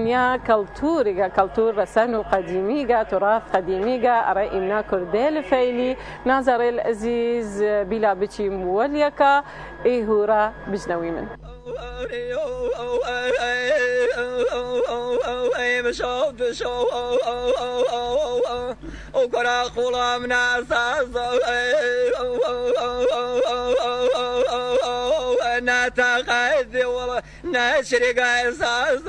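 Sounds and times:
person singing unaccompanied: 11.0s - 29.0s.

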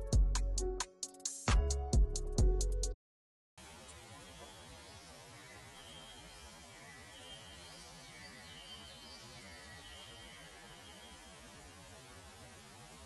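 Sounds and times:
faint hum and hiss: 3.6s - 13.0s.

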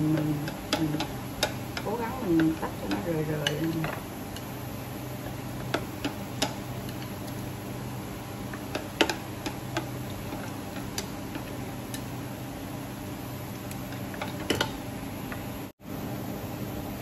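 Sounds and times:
chopsticks tapping glass bowl: 0.0s - 4.5s, 5.2s - 7.5s, 8.5s - 12.2s
steady low hum: 0.0s - 17.0s.

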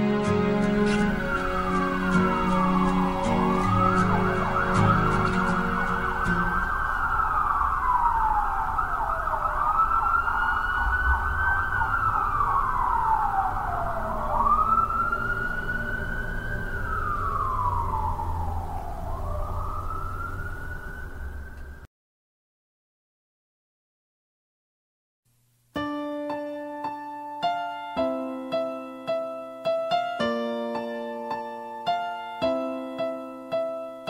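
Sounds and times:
music track: 0.0s - 19.4s, 25.8s - 34.0s
siren wailing: 0.0s - 21.9s.

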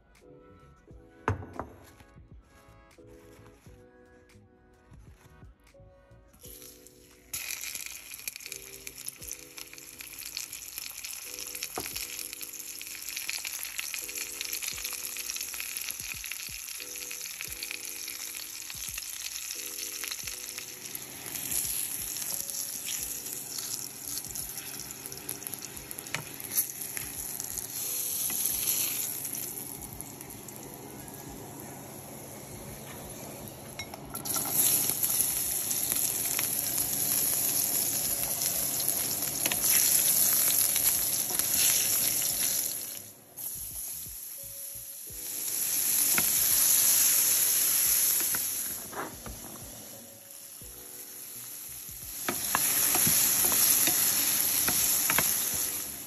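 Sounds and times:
fish sizzling in hot oil: 6.4s - 31.4s, 34.2s - 56.0s
garlic sizzling in oil: 6.5s - 32.2s, 34.2s - 56.0s.

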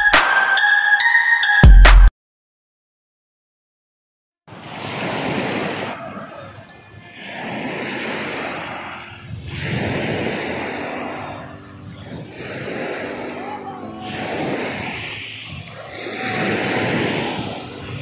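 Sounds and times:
small waves washing ashore: 4.5s - 18.0s.

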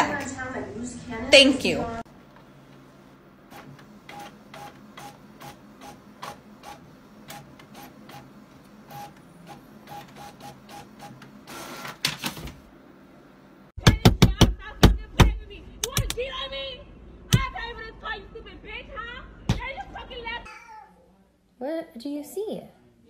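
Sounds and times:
printer pushing out sheet: 3.5s - 12.6s.

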